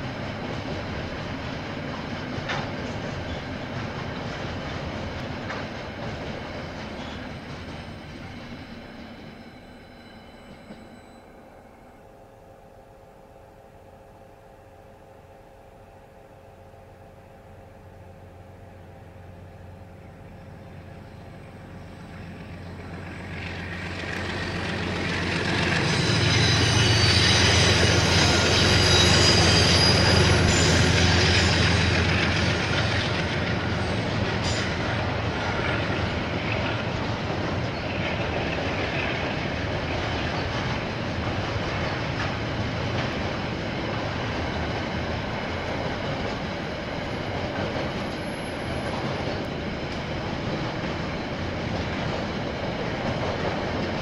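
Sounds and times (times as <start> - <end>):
train wagons rolling past: 0.0 - 11.3, 18.8 - 54.0
locomotive engine rumble: 16.6 - 54.0.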